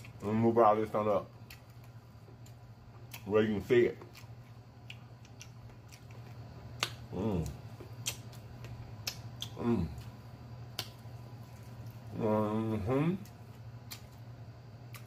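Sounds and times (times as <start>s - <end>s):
steady low hum: 0.0s - 15.0s
wet lip-smacking while eating: 1.4s - 3.3s, 3.9s - 12.1s, 13.2s - 15.0s
person moaning mmm: 7.1s - 7.6s, 9.5s - 10.0s.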